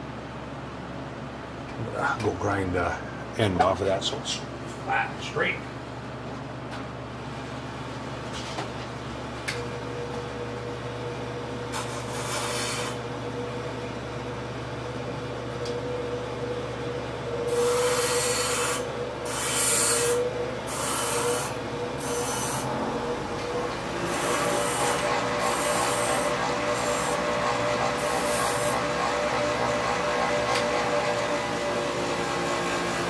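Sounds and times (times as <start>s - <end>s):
grinder whining: 17.3s - 33.0s.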